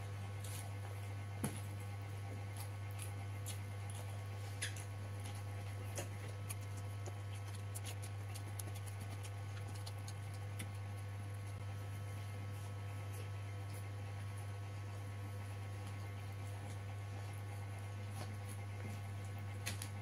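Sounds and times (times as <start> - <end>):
steady low hum: 0.0 - 20.0
eating clicks and smacks: 2.5 - 11.6.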